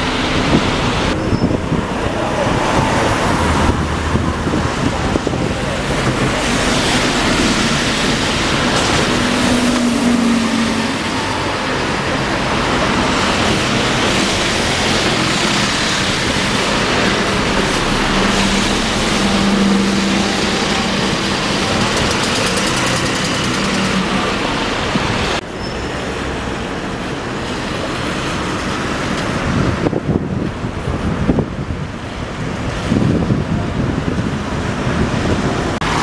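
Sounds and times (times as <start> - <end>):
wind noise: 0.0 - 25.8, 26.8 - 36.0
street traffic: 0.0 - 36.0
large vehicle engine passing: 2.1 - 25.4.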